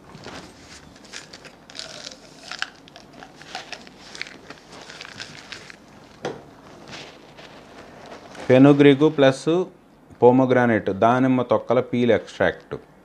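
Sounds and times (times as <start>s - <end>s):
plastic packaging crinkling: 0.1s - 9.1s.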